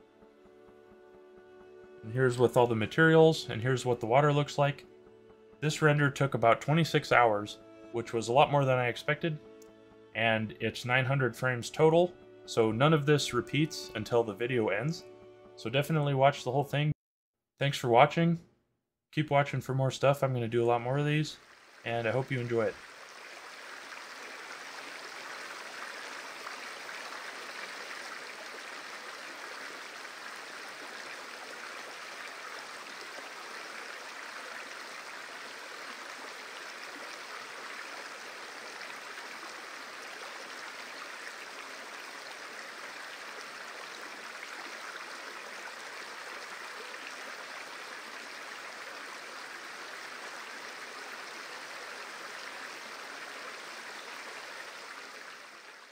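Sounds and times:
stream water rushing: 21.4 - 55.9.

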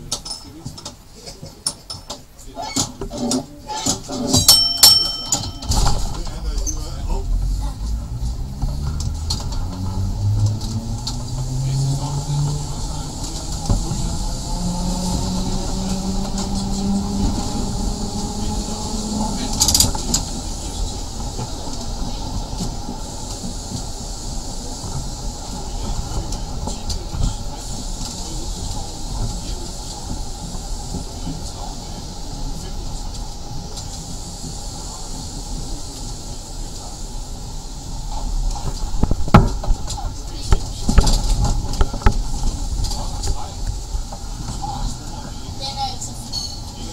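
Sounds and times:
tram running on tracks: 0.0 - 46.9
tram bell ringing: 4.4 - 7.2, 46.2 - 46.9.

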